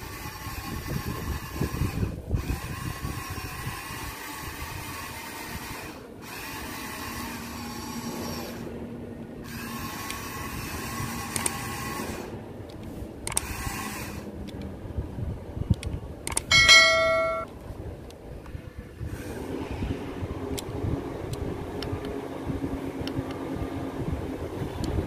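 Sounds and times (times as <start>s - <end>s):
toy excavator motor whining: 0.0s - 8.8s, 9.4s - 12.4s, 13.2s - 14.6s.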